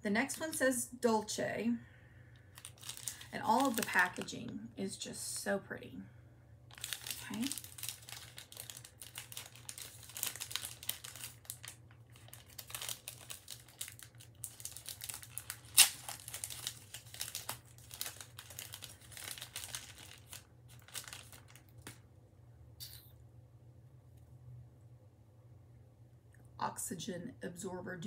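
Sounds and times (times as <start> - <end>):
snack wrapper crinkling: 2.5 - 4.3, 6.7 - 22.0.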